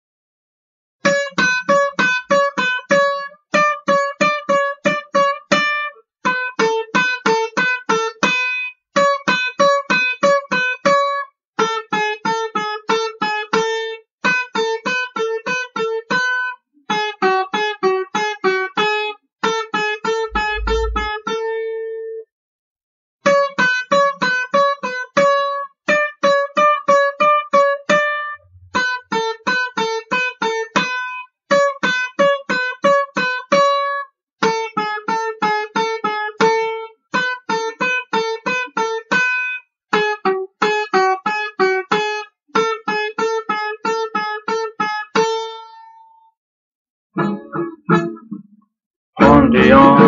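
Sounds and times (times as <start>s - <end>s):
short low rumble: 20.3s - 21.2s
solo banjo picking: 47.2s - 48.6s, 49.2s - 50.0s.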